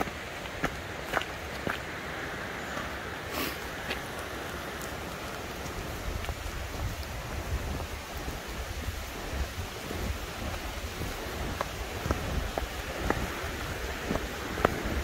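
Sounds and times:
footsteps on gravel trail: 0.0s - 15.0s
steady rushing hiss: 0.0s - 15.0s
wind buffeting microphone: 4.7s - 15.0s.

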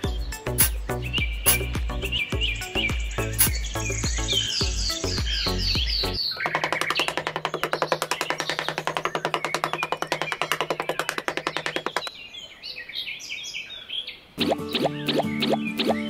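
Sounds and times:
background music with fast pulse: 0.0s - 7.1s, 14.4s - 16.0s.

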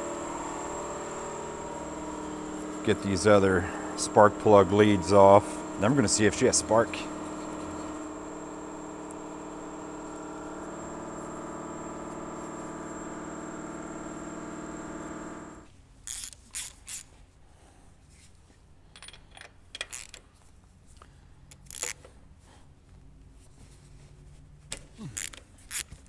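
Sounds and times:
many-toned machine drone: 0.0s - 15.7s
wrench clinking on metal: 18.9s - 20.2s.

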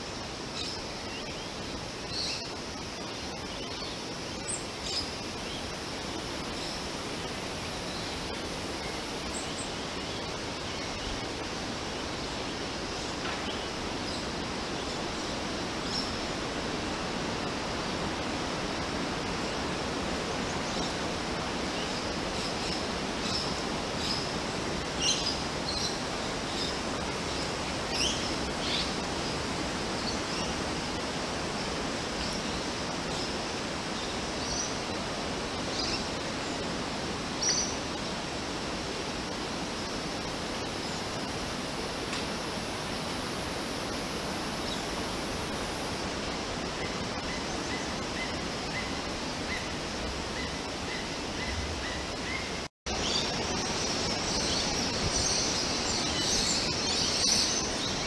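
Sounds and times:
steady hiss background noise: 0.0s - 58.0s
small birds chirping: 42.4s - 58.0s.

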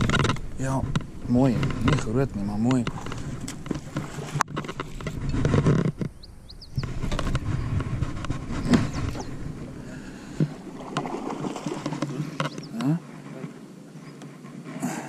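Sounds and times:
low gusty rumbling: 5.1s - 12.0s
high bird chirps: 6.1s - 6.9s, 8.6s - 9.4s.

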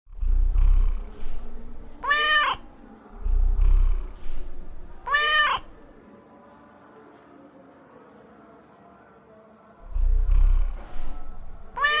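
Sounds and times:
cat purring: 0.1s - 5.8s, 9.8s - 12.0s
cat meowing: 2.0s - 2.7s, 5.0s - 5.8s, 11.6s - 12.0s.

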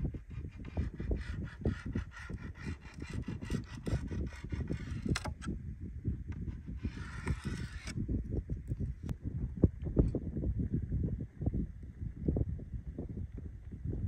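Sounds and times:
pencil scratching on paper: 0.0s - 5.4s, 6.5s - 8.0s
wind rumble on microphone: 0.0s - 14.0s.

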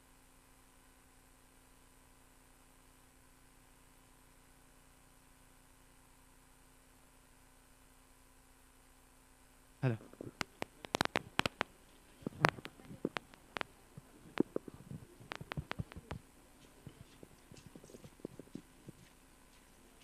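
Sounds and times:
sharp clicks and knocks: 10.2s - 19.1s.

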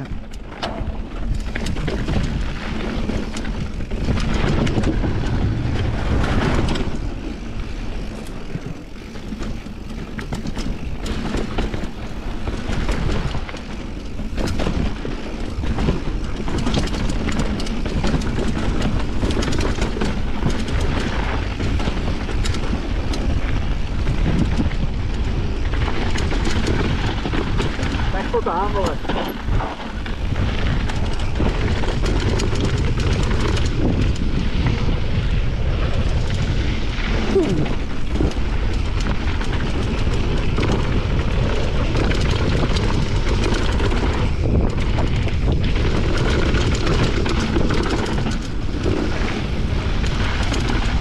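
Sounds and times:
bike frame and chain clattering: 0.0s - 51.0s
bike tyres rumbling on gravel: 0.0s - 51.0s
wind buffeting microphone: 0.0s - 51.0s.

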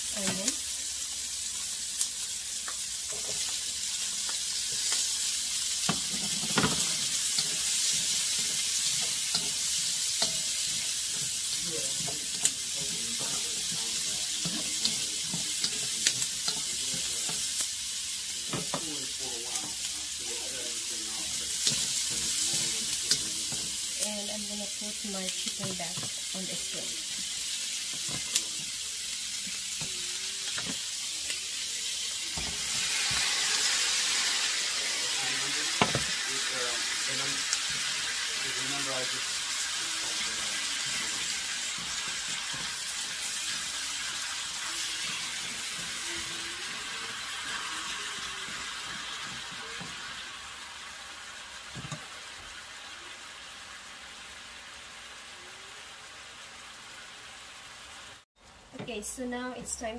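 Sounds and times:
food sizzling in a wok: 0.0s - 59.9s.

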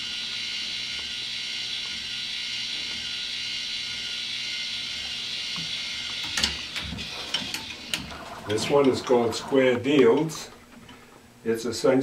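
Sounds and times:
small electric motor whirring: 0.0s - 10.4s
constant hiss: 5.0s - 12.0s.

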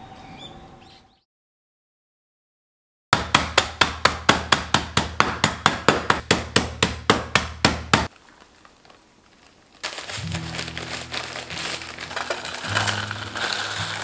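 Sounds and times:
rolling pin pounding biscuits: 3.2s - 8.1s
plastic bag rustling: 8.1s - 14.0s.

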